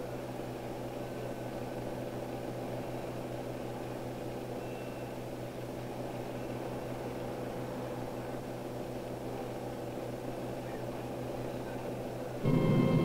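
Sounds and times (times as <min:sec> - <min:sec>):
film soundtrack hum and hiss: 0:00.0 - 0:13.0.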